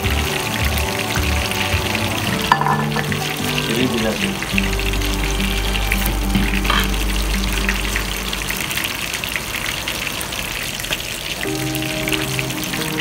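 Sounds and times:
hot oil sizzling and crackling: 0.0s - 13.0s
steady low hum: 4.3s - 9.7s.

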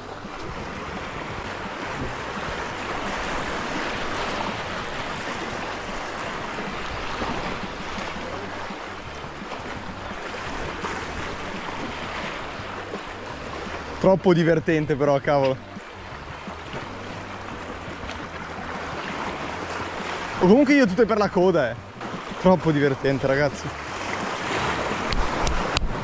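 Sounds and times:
wind on microphone: 0.0s - 14.0s, 23.8s - 26.0s
sea water sloshing: 0.0s - 26.0s.

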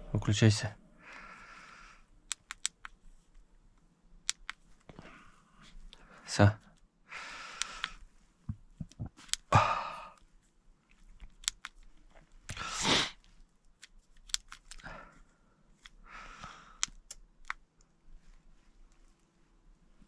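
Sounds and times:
remote control clicks and taps: 2.3s - 3.0s, 4.2s - 4.6s, 7.6s - 9.5s, 13.8s - 14.8s
short breaths close to microphone: 7.1s - 8.0s, 12.5s - 13.2s.

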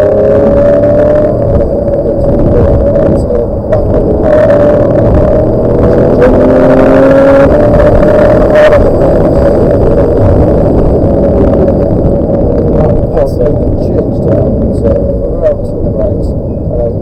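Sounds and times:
car engine at high revs: 0.0s - 17.0s.

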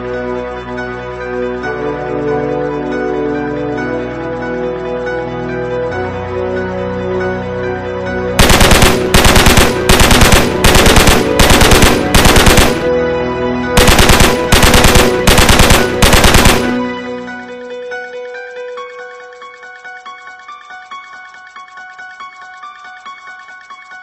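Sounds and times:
background music: 0.0s - 24.0s
machine-gun bursts: 8.4s - 13.0s, 13.8s - 16.9s.

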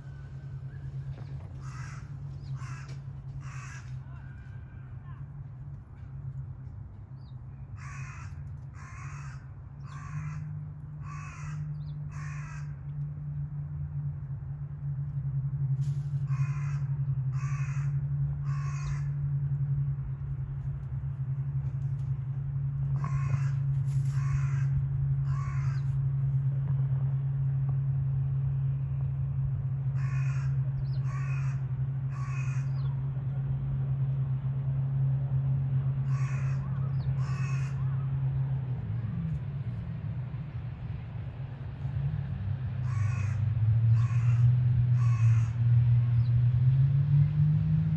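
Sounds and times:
steady low hum: 0.0s - 47.9s
crow cawing: 1.6s - 4.6s, 7.8s - 12.8s, 16.3s - 19.2s, 23.0s - 25.9s, 30.0s - 32.8s, 36.0s - 38.0s, 42.8s - 45.6s.

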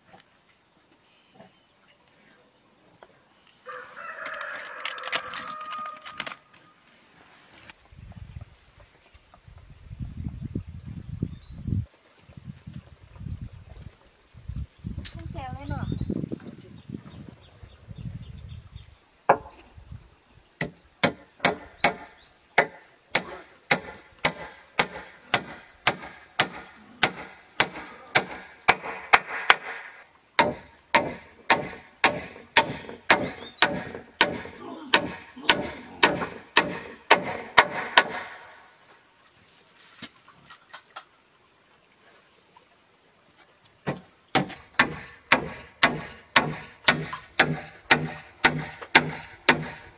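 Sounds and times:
hammer striking nails: 20.6s - 29.8s, 30.4s - 38.5s, 43.9s - 49.9s.

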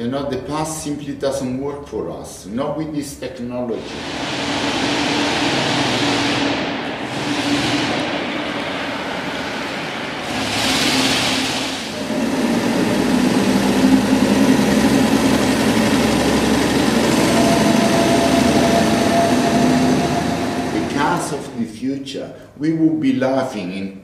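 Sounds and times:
vehicle running with low hum: 3.8s - 21.0s
small car passing with hiss: 3.8s - 21.6s.

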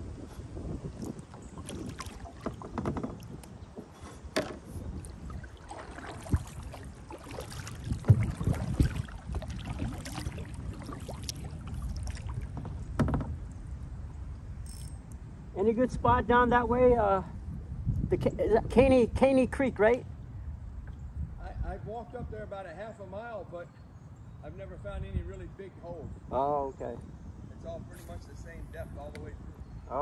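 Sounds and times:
paddle splashing through water: 0.1s - 13.6s.

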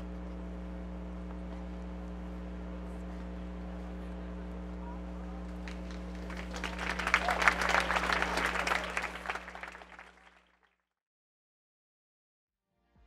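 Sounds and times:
steady low hum: 0.0s - 10.1s
crowd applauding: 5.2s - 10.7s.

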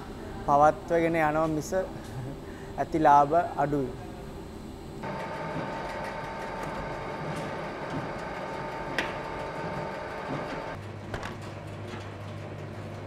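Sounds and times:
conveyor machine running: 5.0s - 13.0s.

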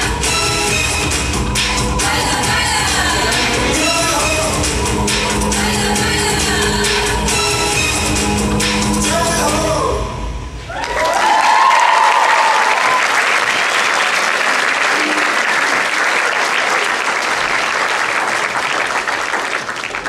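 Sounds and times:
music: 0.0s - 10.6s
people cheering: 10.6s - 20.0s
audience applause: 10.7s - 20.0s.

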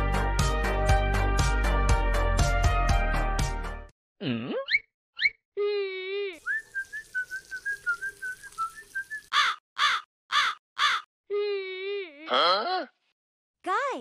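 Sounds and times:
caw-like squawks: 9.3s - 11.1s.

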